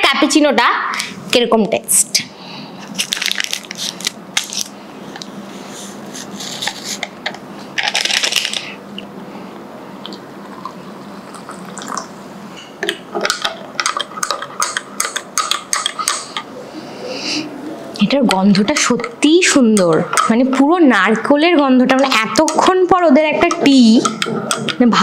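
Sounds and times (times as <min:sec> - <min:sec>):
sachet rustling: 0:02.9 - 0:04.8, 0:07.8 - 0:08.8.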